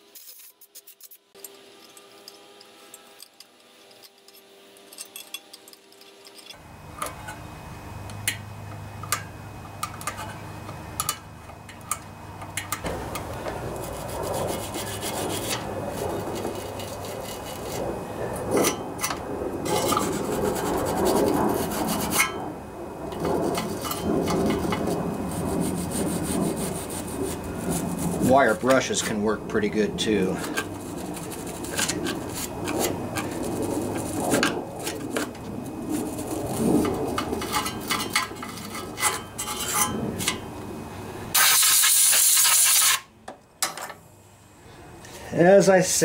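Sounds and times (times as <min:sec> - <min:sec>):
metal scraper scraping sealant: 0:00.0 - 0:07.4, 0:12.6 - 0:17.8, 0:18.5 - 0:22.4, 0:23.1 - 0:40.4.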